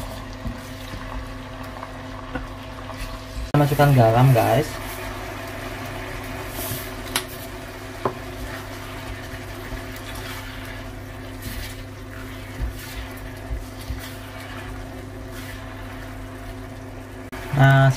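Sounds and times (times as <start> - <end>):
sauce simmering: 0.0 - 17.9
spatula stirring: 6.4 - 17.1.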